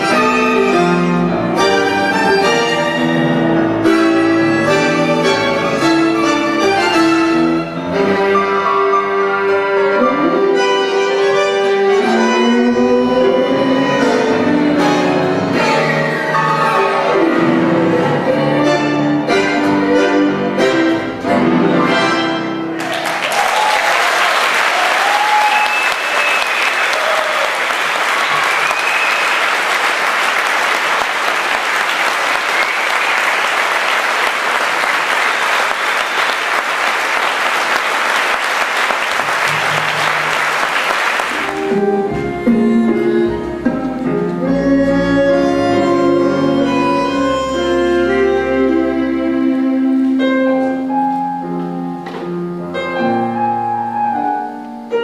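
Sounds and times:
tango orchestra playing: 0.0s - 22.9s, 28.1s - 55.0s
audience applauding: 22.7s - 41.8s.

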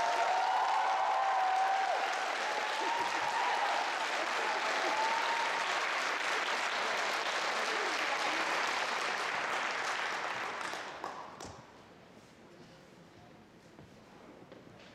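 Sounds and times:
audience applauding: 0.0s - 11.5s.

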